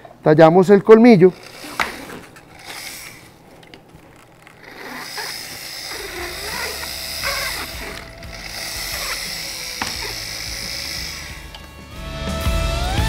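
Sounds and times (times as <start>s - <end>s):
dental burr grinding tooth: 1.3s - 11.8s.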